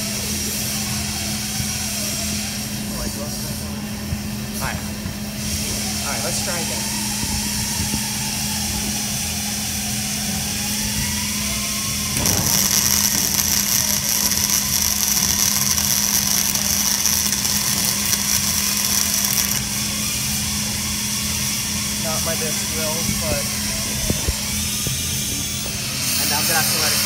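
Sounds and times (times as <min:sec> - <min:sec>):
low hum: 0:06.9 - 0:26.1
welding arc crackling and hissing: 0:07.8 - 0:27.0.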